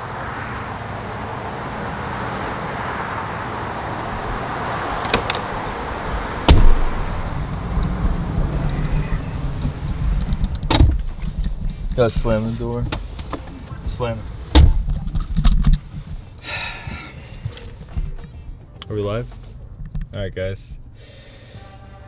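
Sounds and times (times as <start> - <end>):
low rumble inside car: 0.0 - 21.0
traffic noise: 0.0 - 22.0
car door shutting: 5.0 - 5.7, 6.4 - 16.2.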